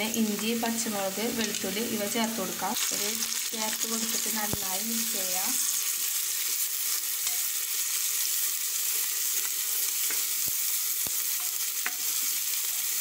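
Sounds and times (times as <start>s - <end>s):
vegetables sizzling in hot oil: 0.0s - 13.0s.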